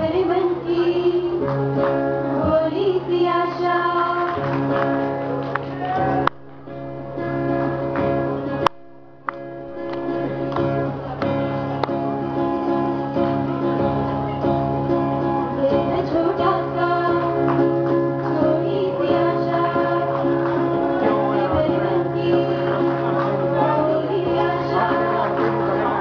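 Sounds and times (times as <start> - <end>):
acoustic guitar playing: 0.0 - 26.0
group of voices singing: 18.3 - 26.0.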